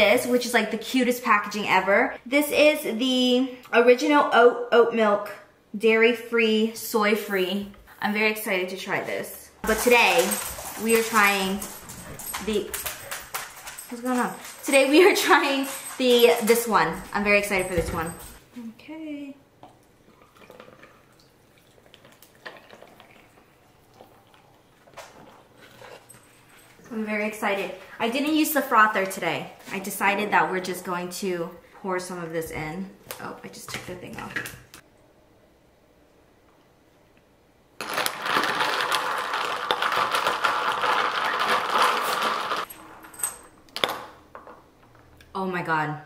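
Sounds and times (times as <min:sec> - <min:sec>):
ice cubes clinking in glass jar: 0:09.6 - 0:18.3, 0:37.8 - 0:43.4
coffee trickling into jar: 0:20.1 - 0:25.4.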